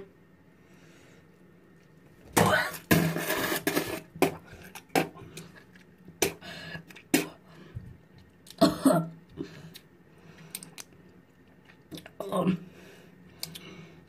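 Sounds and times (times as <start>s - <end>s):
boy coughing and gagging: 2.4s - 2.9s, 8.6s - 9.1s.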